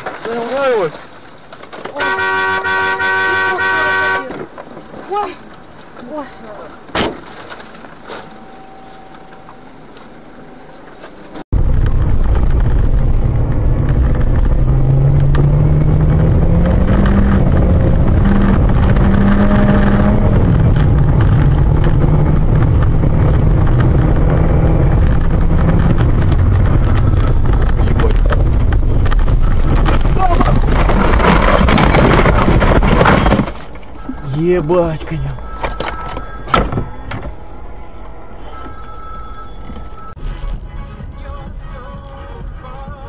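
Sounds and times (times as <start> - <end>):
low road rumble: 0.0 - 43.0
vehicle engine accelerating: 11.6 - 33.2.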